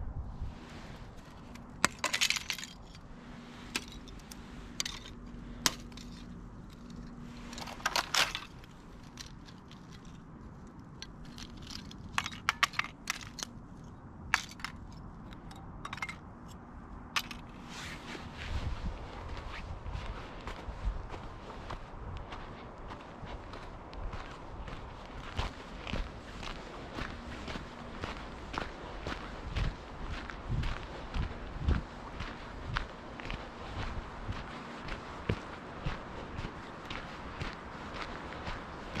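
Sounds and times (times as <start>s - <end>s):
thin ice cracking and clinking: 1.8s - 3.0s, 3.7s - 10.2s.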